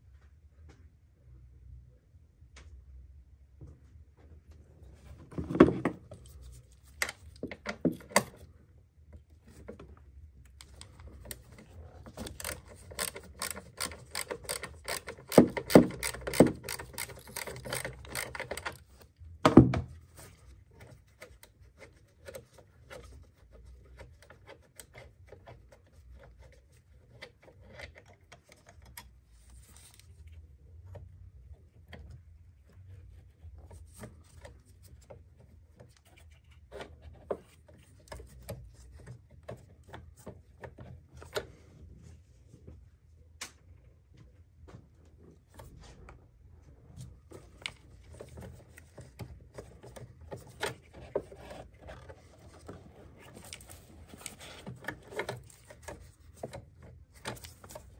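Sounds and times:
tools clicking and knocking: 0:10.6 - 0:18.8.

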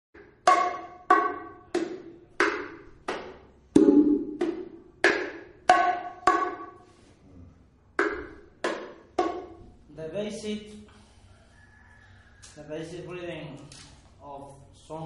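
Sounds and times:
conga drum struck by hand: 0:00.3 - 0:06.8, 0:08.0 - 0:09.6.

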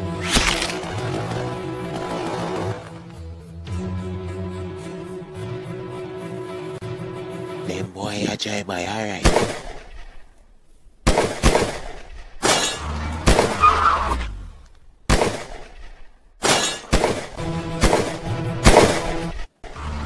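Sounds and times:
background music: 0:00.0 - 0:09.7, 0:17.1 - 0:20.0
gunshots: 0:09.2 - 0:10.3, 0:11.0 - 0:14.3, 0:15.1 - 0:19.8.

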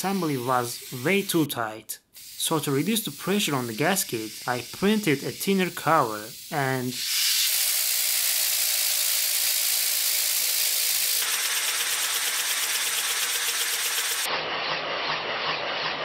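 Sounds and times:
compressed air hissing: 0:00.0 - 0:14.3
fast rattle of wobbling disk: 0:08.2 - 0:14.3.

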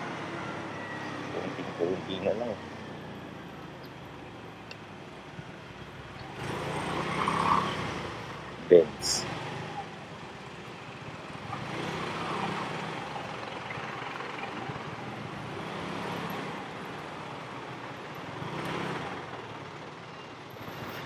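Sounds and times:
passing vehicles: 0:00.0 - 0:21.0
road and wind noise: 0:00.0 - 0:21.0.

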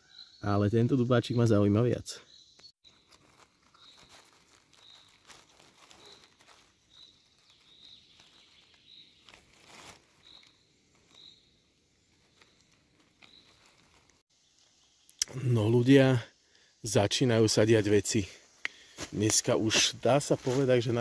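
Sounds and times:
rustling in leaf litter: 0:02.8 - 0:14.3, 0:18.9 - 0:21.0.

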